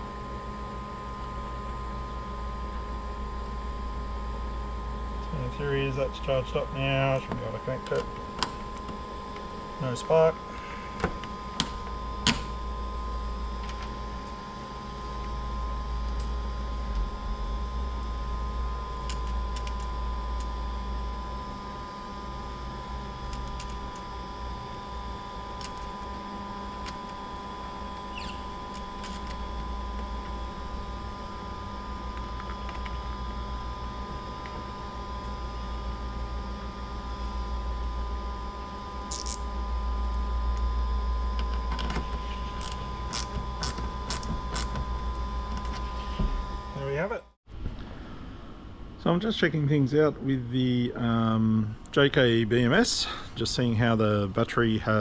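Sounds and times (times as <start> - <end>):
steady low hum: 0.0 - 55.0
steady high-pitched tone: 3.6 - 47.4.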